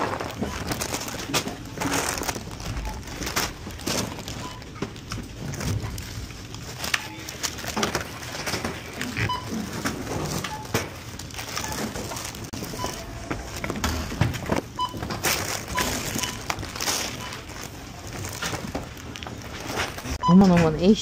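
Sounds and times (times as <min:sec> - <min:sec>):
store background noise: 0:00.0 - 0:21.0
barcode scanner beeps: 0:09.1 - 0:09.6, 0:11.5 - 0:13.3, 0:14.7 - 0:17.5, 0:20.2 - 0:21.0.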